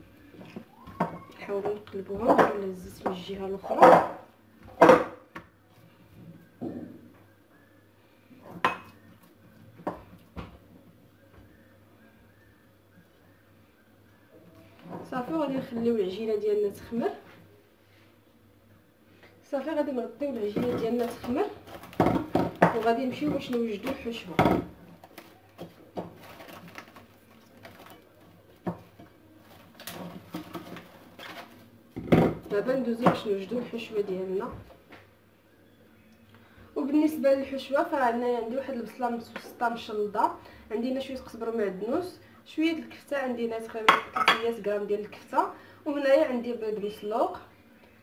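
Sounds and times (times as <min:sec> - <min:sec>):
cling film crinkling: 0:25.0 - 0:28.5.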